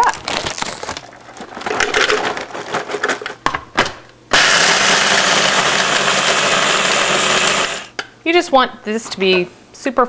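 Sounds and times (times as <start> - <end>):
food processor grinding: 4.3 - 8.0.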